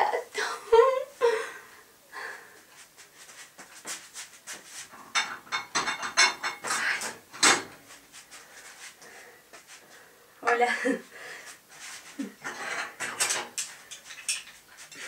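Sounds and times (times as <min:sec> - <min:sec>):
dishes and utensils clinking: 0:04.9 - 0:07.8, 0:12.4 - 0:15.0.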